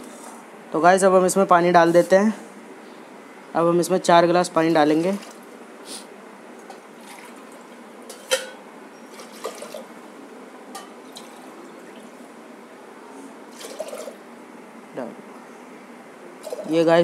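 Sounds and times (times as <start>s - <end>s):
metal vessels clinking: 8.1s - 9.8s, 10.7s - 11.5s
water pouring into pot: 9.1s - 9.9s, 13.5s - 14.2s.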